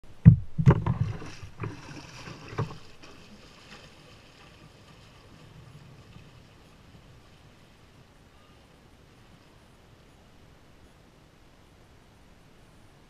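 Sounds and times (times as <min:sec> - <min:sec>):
dull knocks: 0:00.2 - 0:01.8
splashing through shallow water: 0:00.2 - 0:09.8.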